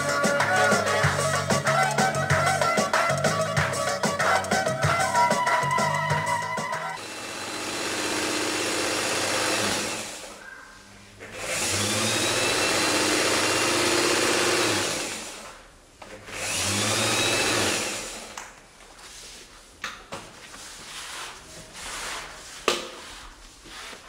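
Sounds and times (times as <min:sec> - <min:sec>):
sewing machine whirring: 0:06.9 - 0:10.4, 0:11.3 - 0:15.6, 0:16.3 - 0:18.4.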